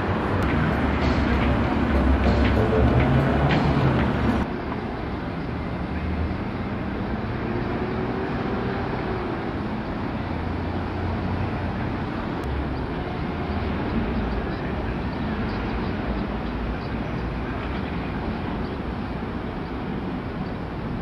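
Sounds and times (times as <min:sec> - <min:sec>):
low vehicle rumble: 0:00.0 - 0:04.5.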